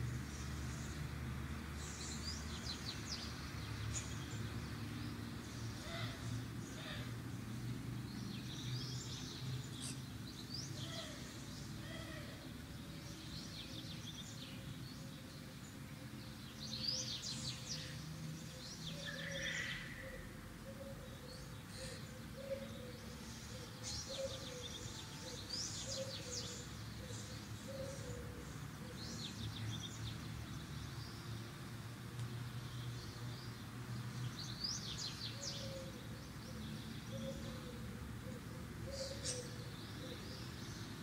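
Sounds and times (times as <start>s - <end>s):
low background noise: 0.0s - 41.0s
small birds chirping: 21.0s - 41.0s.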